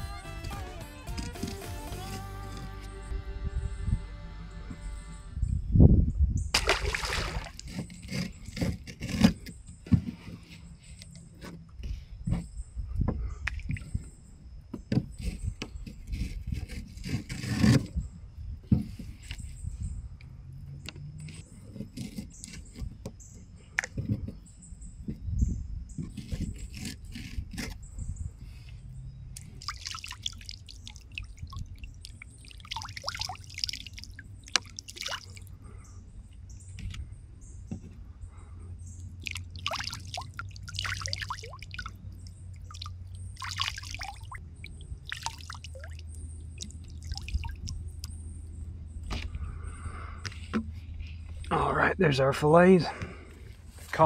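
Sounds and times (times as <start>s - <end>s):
water pouring and splashing: 6.6s - 7.9s, 29.4s - 35.5s, 39.2s - 47.8s.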